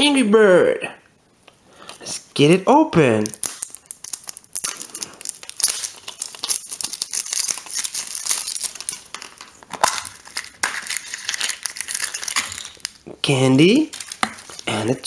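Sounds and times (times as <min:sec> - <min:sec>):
plastic egg halves snapping apart: 0:03.2 - 0:13.0
plastic wrapper crinkling and tearing: 0:03.2 - 0:15.0.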